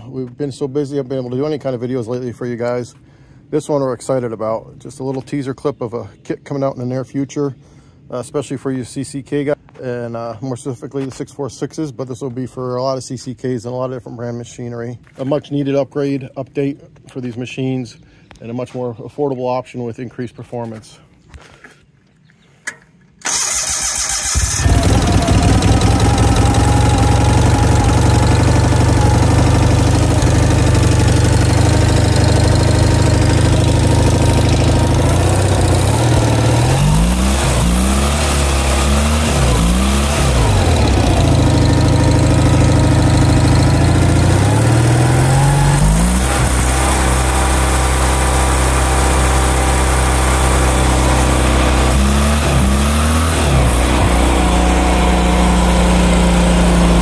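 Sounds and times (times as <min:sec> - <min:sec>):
engine idling: 0:23.2 - 0:57.0
engine throttle blips: 0:23.2 - 0:57.0.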